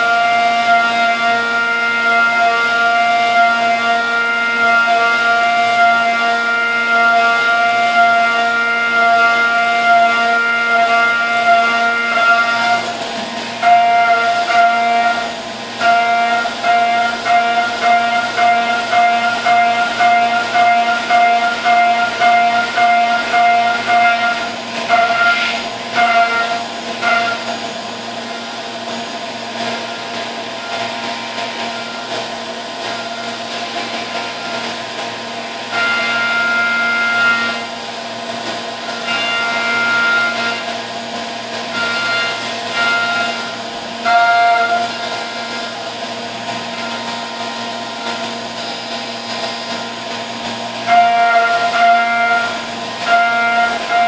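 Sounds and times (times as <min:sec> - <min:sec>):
high-pitched mill spindle tone: 0:35.7 - 0:37.7, 0:38.9 - 0:40.8, 0:41.7 - 0:50.0, 0:50.7 - 0:54.0.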